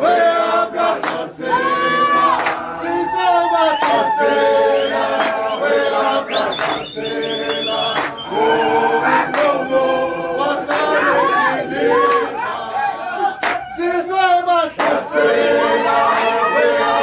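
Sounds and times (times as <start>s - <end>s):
group singing unaccompanied: 0.0s - 17.0s
sharp hand claps: 1.0s - 1.3s, 2.4s - 2.7s, 3.7s - 8.3s, 10.7s - 11.0s, 12.0s - 12.3s, 13.4s - 13.8s, 14.7s - 15.1s, 16.1s - 16.4s.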